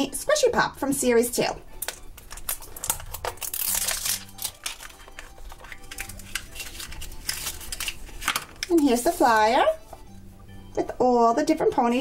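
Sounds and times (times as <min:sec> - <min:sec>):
plastic wrapper crinkling: 0:01.8 - 0:09.7.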